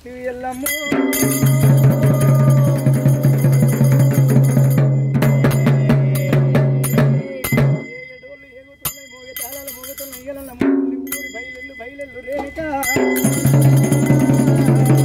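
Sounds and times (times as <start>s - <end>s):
quiet voices: 0.0s - 3.2s, 5.6s - 15.0s
fast driving drumming: 0.8s - 8.0s, 12.8s - 15.0s.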